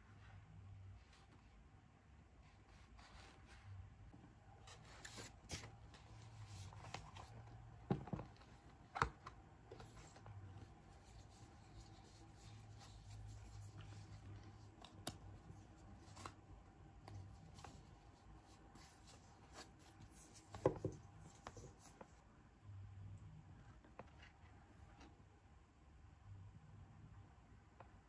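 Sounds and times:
faint steady hum: 0:00.0 - 0:28.0
paper cards rustling: 0:04.6 - 0:16.4.

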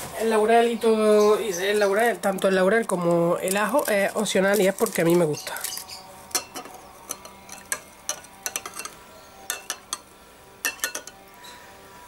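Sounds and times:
spoon clinking against glass bowl: 0:05.6 - 0:11.3.

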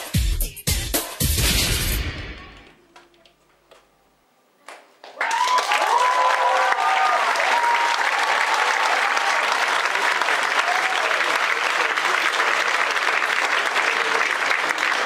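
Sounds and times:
dance music: 0:00.0 - 0:02.6
audience applause: 0:05.0 - 0:15.0
cheers and whoops: 0:05.2 - 0:11.4.

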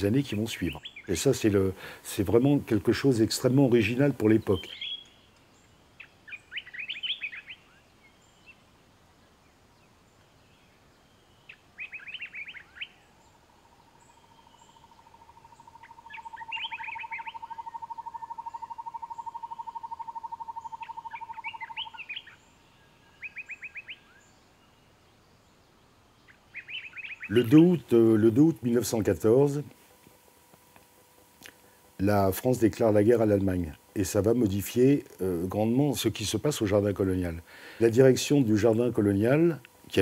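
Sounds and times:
songbirds singing: 0:00.0 - 0:40.0
low even bird trill: 0:11.2 - 0:24.6.

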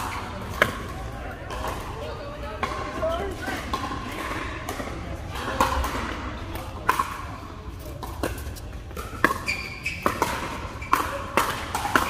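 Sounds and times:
short high squeak: 0:09.5 - 0:10.0.

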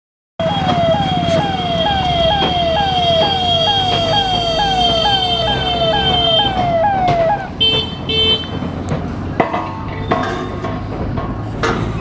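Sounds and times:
steady high tone: 0:00.4 - 0:07.6
ambulance siren wailing: 0:00.4 - 0:07.8.

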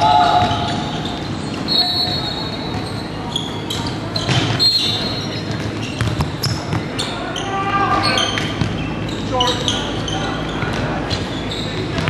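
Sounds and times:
sneaker squeaks: 0:00.0 - 0:12.0
basketball bouncing on hardwood: 0:05.5 - 0:06.9.

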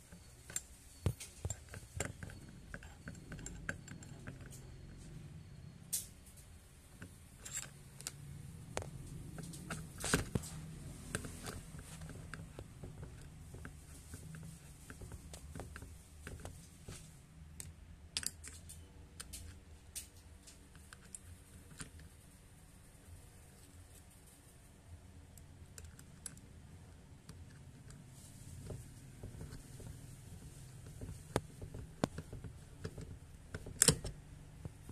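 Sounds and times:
screwdriver clicking and tapping: 0:00.1 - 0:04.7, 0:30.8 - 0:34.8.

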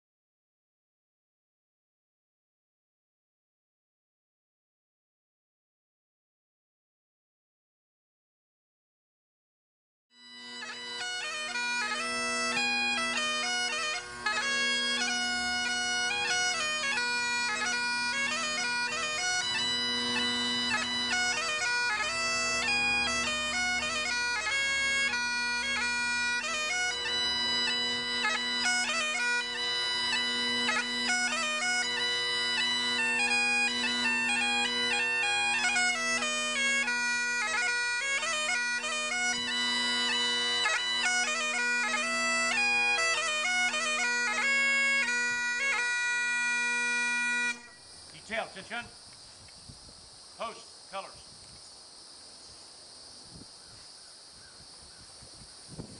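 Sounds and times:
bagpipes playing slow tune: 0:10.1 - 0:49.4.

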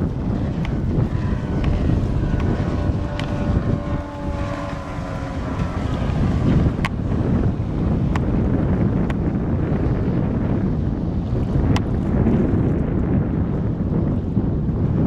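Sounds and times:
outboard motor drone: 0:00.0 - 0:15.0
wind buffeting microphone: 0:00.0 - 0:15.0.

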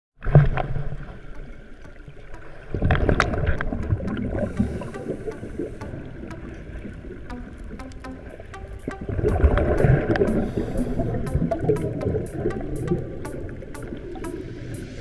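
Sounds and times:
sharp clicks: 0:07.3 - 0:15.0.

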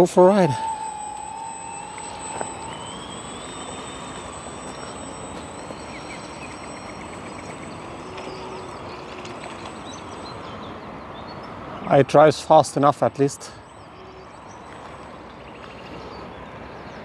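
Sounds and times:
constant hiss: 0:00.0 - 0:10.8
electric motor whine: 0:00.0 - 0:10.9, 0:13.6 - 0:16.2.

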